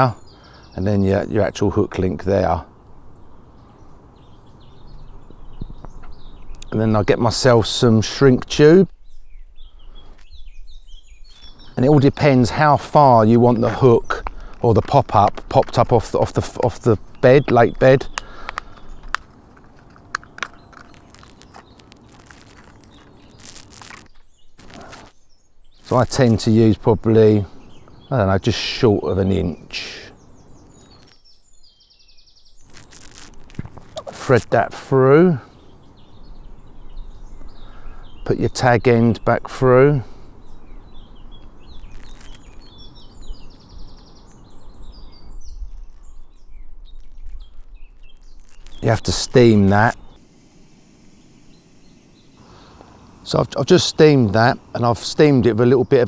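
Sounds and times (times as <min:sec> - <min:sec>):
quiet outdoor background noise: 0:00.0 - 0:56.0
songbirds singing: 0:00.0 - 0:56.0
small clicks of fishing tackle: 0:18.1 - 0:22.8
brief rustle: 0:18.2 - 0:25.2, 0:32.6 - 0:34.6, 0:41.7 - 0:42.8.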